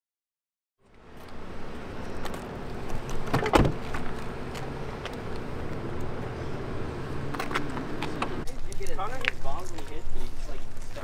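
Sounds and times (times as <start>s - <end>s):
outdoor background noise: 0.8s - 11.0s
van door clicks and clunk: 2.2s - 4.6s.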